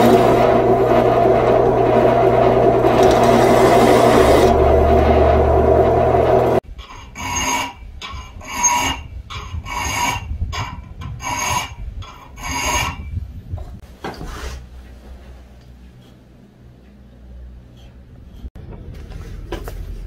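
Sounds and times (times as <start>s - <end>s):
file scraping steel blade: 6.8s - 13.1s.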